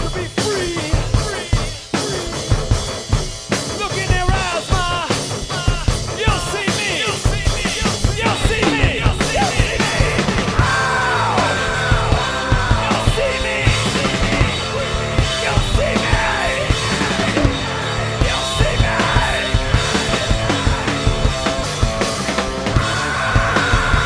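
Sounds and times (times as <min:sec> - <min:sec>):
live rock band playing: 0:00.0 - 0:24.0
lead guitar line bending notes: 0:08.0 - 0:24.0.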